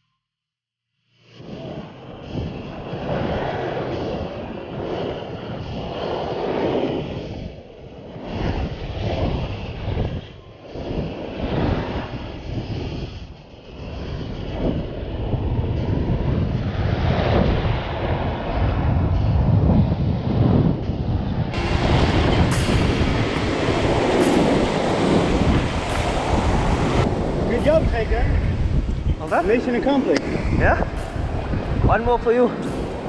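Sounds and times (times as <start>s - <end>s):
wind buffeting microphone: 1.3s - 33.0s
ocean surf: 21.6s - 33.0s.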